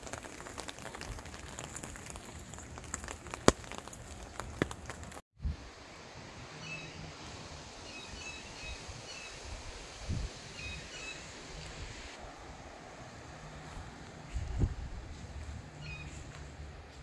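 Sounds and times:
wind-like hiss: 5.4s - 17.0s.

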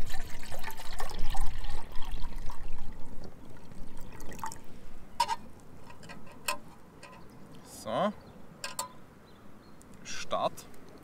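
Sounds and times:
water pouring into metal cup: 0.0s - 4.6s.

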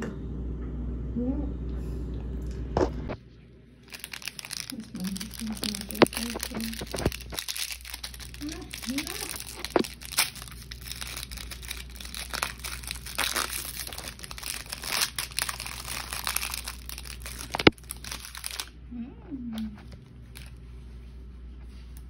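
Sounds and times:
snack wrapper crinkling: 3.8s - 18.8s, 19.8s - 20.6s.

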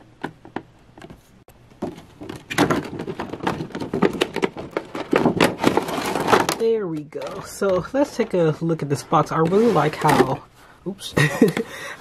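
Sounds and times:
plastic packaging crinkling: 1.8s - 8.1s.

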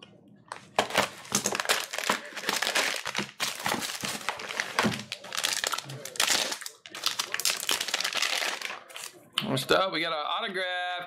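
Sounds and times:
cellophane and foil crinkling: 0.5s - 9.2s.

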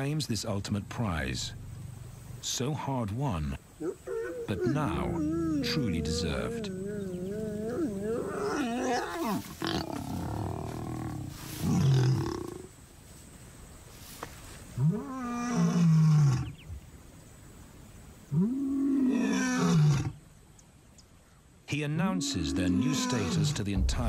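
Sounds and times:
lion snarling: 3.8s - 12.7s
lion roaring: 4.0s - 12.6s.

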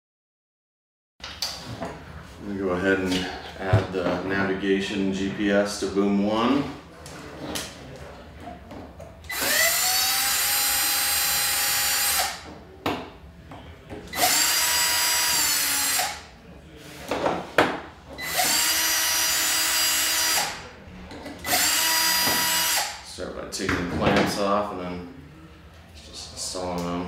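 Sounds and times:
cordless drill whining: 9.3s - 12.4s, 14.1s - 16.2s, 18.2s - 20.5s, 21.4s - 22.9s.

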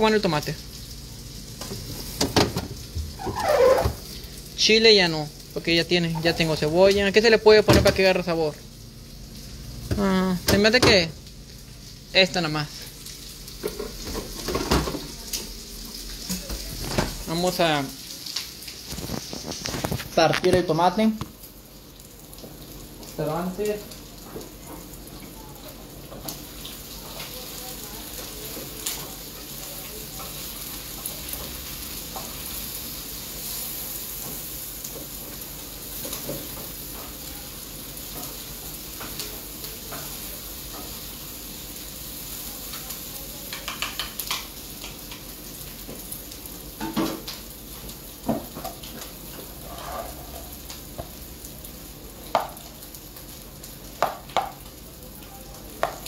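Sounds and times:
food sizzling in a pan: 0.0s - 56.0s
spatula clicking and knocking: 43.5s - 45.2s.

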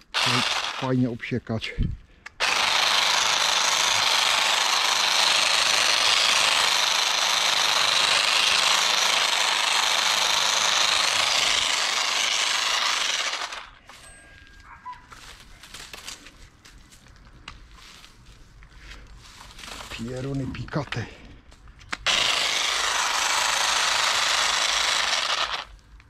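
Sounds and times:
electric garden trimmer running: 0.1s - 1.0s, 2.4s - 13.8s, 22.0s - 25.8s.

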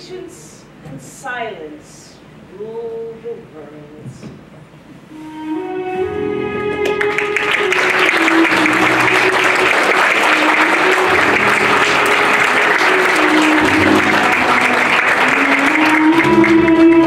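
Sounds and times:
music with held notes: 5.1s - 17.0s
audience applauding: 6.8s - 17.0s.

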